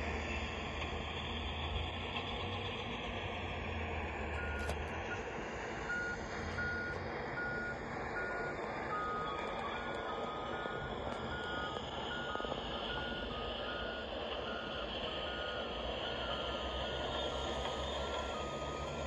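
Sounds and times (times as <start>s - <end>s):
engine noise: 0.0s - 19.0s
truck reversing alarm beeping: 0.1s - 19.0s
lower-pitched second alarm: 5.9s - 19.0s.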